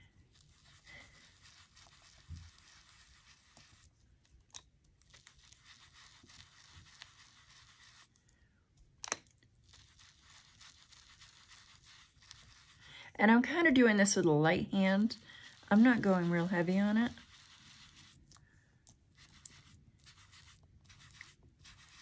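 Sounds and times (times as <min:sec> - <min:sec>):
foam dauber rubbing on card: 0:00.3 - 0:03.9, 0:05.1 - 0:08.1, 0:09.6 - 0:12.9, 0:14.8 - 0:18.3, 0:19.1 - 0:22.0.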